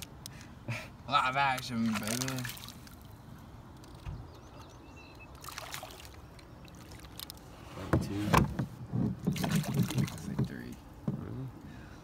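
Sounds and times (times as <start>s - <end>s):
fish splashing at water surface: 5.4s - 7.4s.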